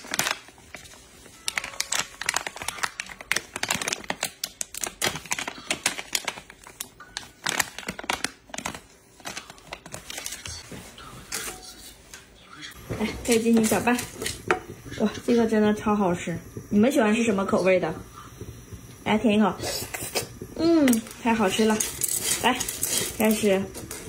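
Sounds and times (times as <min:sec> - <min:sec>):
plastic packet crinkling: 0:00.0 - 0:10.6, 0:20.0 - 0:24.0.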